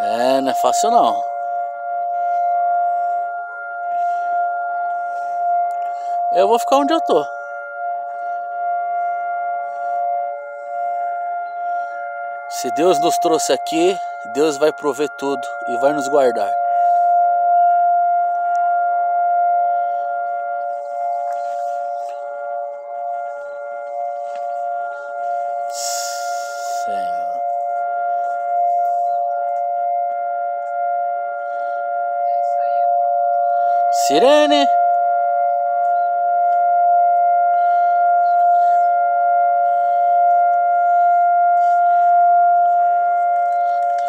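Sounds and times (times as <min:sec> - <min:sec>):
air raid siren steady tone: 0:00.0 - 0:44.0.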